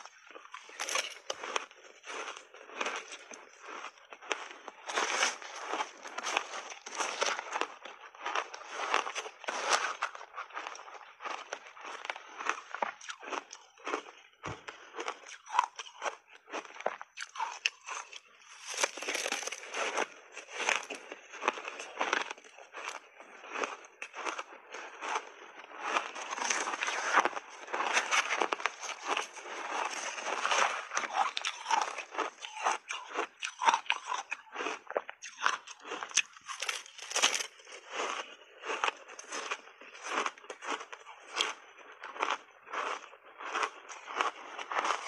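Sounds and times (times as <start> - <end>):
ice being crunched: 0.0 - 14.0, 17.3 - 45.0.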